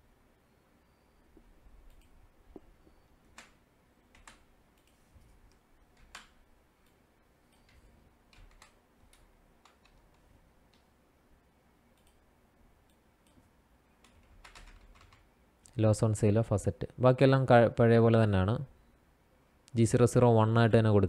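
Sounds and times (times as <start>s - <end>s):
keyboard and mouse clicks: 1.4s - 10.9s, 11.9s - 15.3s.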